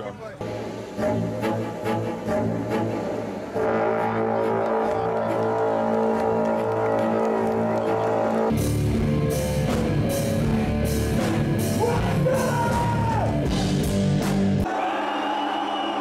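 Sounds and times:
heavy metal band playing: 0:08.2 - 0:14.7
distorted guitars: 0:08.5 - 0:14.6
drums: 0:08.5 - 0:14.7.

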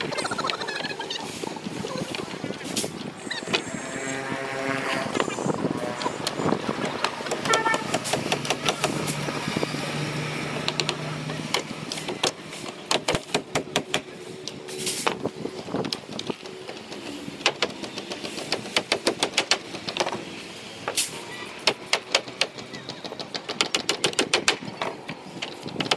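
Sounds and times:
hammer nailing boards: 0:06.2 - 0:09.1, 0:10.6 - 0:14.1, 0:15.8 - 0:20.2, 0:21.6 - 0:25.9.

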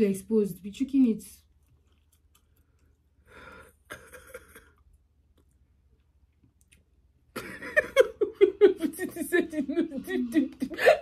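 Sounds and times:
person speaking: 0:08.4 - 0:11.0.

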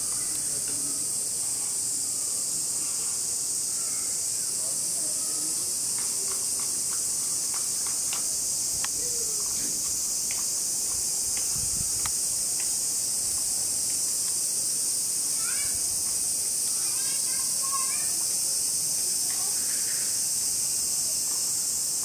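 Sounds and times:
high-pitched insect drone: 0:00.0 - 0:22.0
faint ticks: 0:05.9 - 0:14.4.

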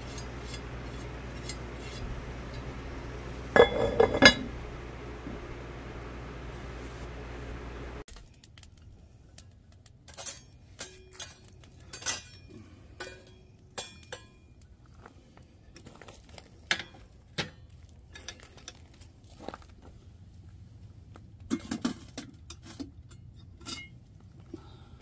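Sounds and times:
charcoal clinking on metal shovel: 0:00.0 - 0:02.7, 0:03.5 - 0:04.5, 0:09.9 - 0:14.7, 0:16.2 - 0:19.5.

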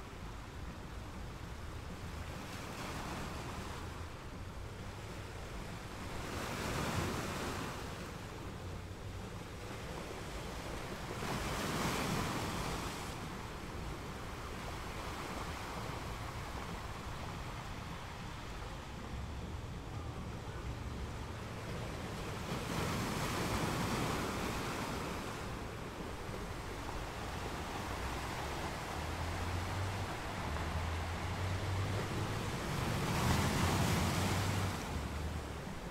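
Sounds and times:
sea waves breaking on beach: 0:21.4 - 0:35.9.

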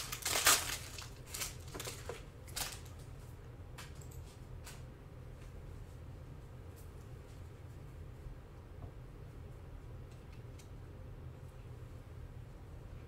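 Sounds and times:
foil card pack crinkling: 0:00.0 - 0:03.0
low steady hum: 0:00.0 - 0:13.0.

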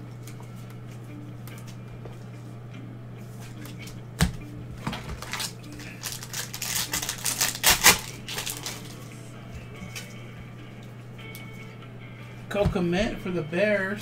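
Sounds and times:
low electrical hum: 0:00.0 - 0:14.0
wrapper crinkling and tearing: 0:04.9 - 0:09.0.

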